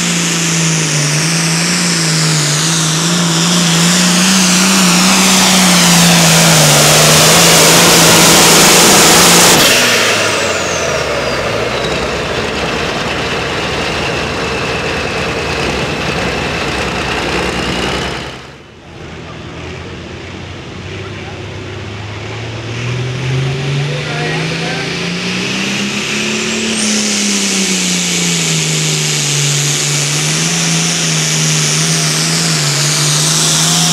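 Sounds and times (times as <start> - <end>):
tractor engine running flat out: 0.0 - 33.9
high whine falling in pitch: 0.3 - 13.0.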